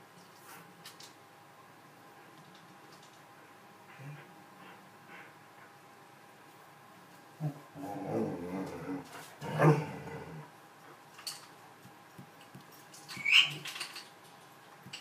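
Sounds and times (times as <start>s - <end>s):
animal low drawn-out vocal: 7.4s - 10.5s.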